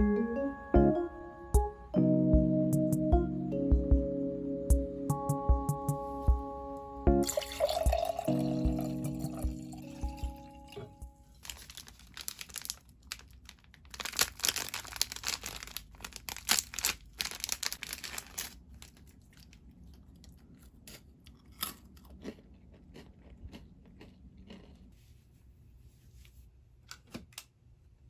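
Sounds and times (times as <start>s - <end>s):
plastic wrapper crinkling: 11.2s - 19.7s.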